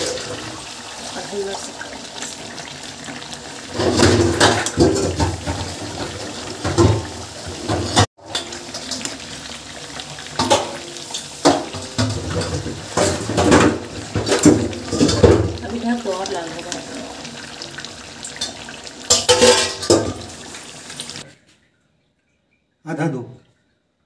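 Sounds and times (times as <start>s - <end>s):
gravy sizzling: 0.0s - 21.4s
metal ladle scraping a pan: 18.4s - 20.2s.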